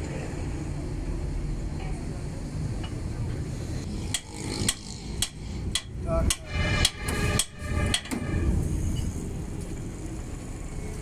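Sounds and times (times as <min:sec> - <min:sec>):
hammer striking steel hub: 0:04.1 - 0:09.1.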